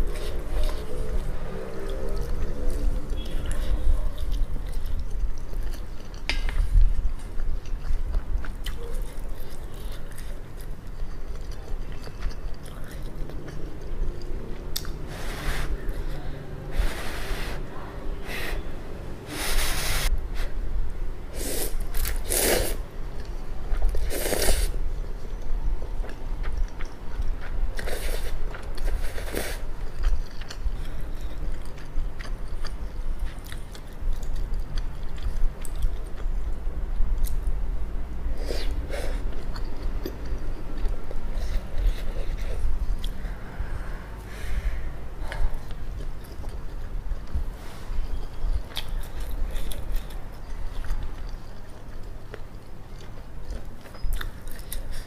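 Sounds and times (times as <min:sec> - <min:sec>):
wet chewing: 0:00.0 - 0:15.1, 0:21.9 - 0:36.5, 0:48.0 - 0:55.0.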